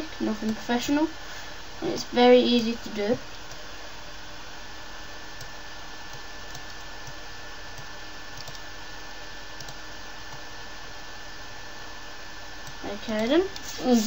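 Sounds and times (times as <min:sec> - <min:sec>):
microphone hiss: 0:00.0 - 0:14.0
keyboard and mouse clicks: 0:06.1 - 0:07.2, 0:07.8 - 0:08.6, 0:09.6 - 0:10.4.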